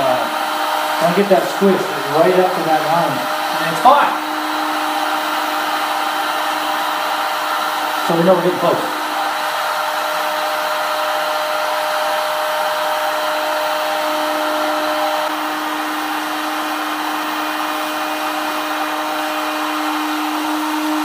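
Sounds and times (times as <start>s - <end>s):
heat gun blowing air: 0.0s - 21.0s.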